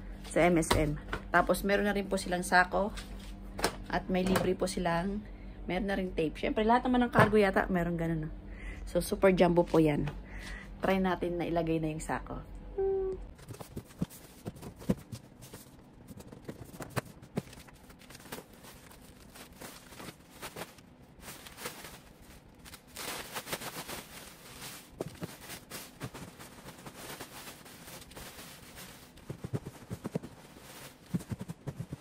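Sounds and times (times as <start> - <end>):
plastic sack rustling and crinkling: 13.4 - 32.0
cardboard flaps knocking: 29.2 - 30.4, 31.1 - 32.0.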